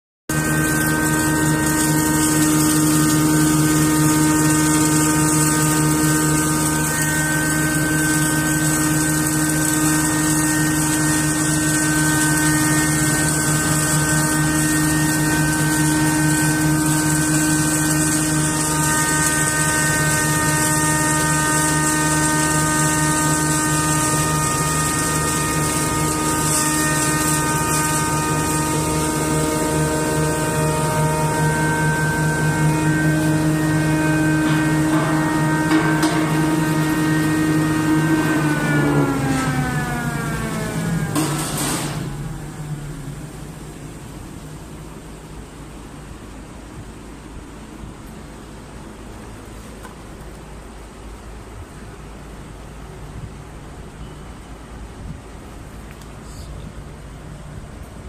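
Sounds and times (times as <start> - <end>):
grain mill grinding: 0.3 - 44.7.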